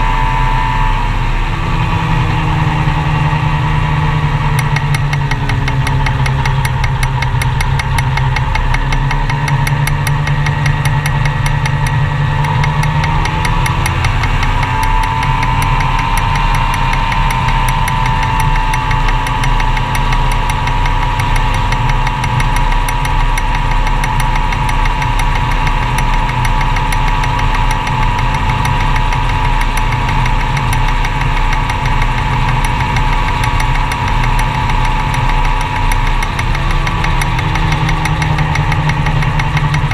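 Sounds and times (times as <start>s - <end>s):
gyroplane engine running: 0.0s - 39.9s.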